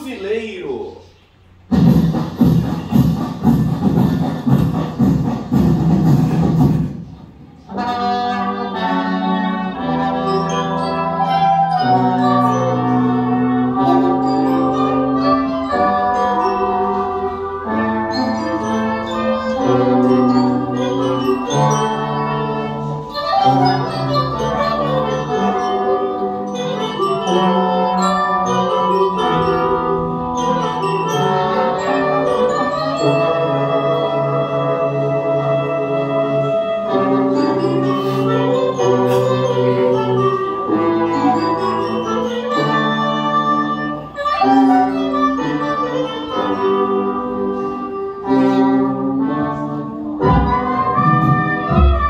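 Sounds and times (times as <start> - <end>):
marching bass drum: 1.7 - 7.0, 50.3 - 52.0
band playing sustained chords: 6.3 - 52.0.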